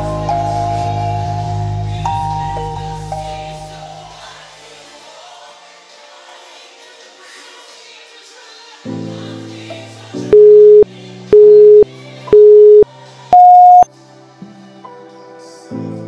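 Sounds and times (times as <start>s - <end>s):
background music: 0.0s - 16.0s
short electronic beeps: 10.4s - 10.8s, 11.4s - 12.8s, 13.4s - 13.9s
higher electronic beep: 10.4s - 12.8s, 13.4s - 13.9s.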